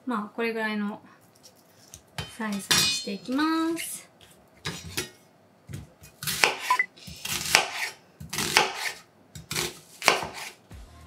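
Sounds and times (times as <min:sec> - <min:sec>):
knife cutting onion on board: 0:06.0 - 0:10.6.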